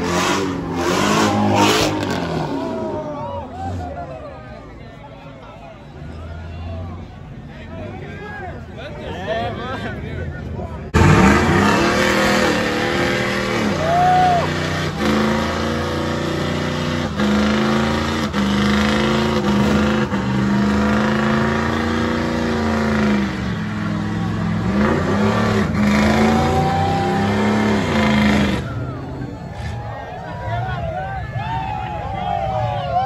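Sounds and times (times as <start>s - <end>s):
car engine revving: 0.0s - 3.0s, 10.9s - 29.8s.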